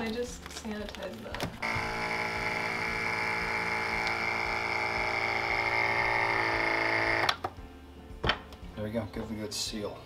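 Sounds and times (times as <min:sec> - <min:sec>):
vacuum sealer pump humming: 0:01.6 - 0:07.4
vacuum sealer click: 0:03.9 - 0:04.6.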